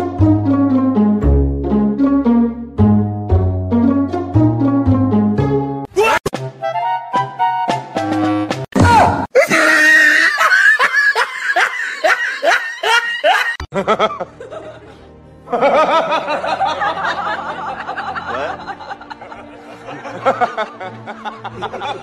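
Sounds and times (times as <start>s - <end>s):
background music: 0.0s - 22.0s
person laughing: 9.4s - 16.5s.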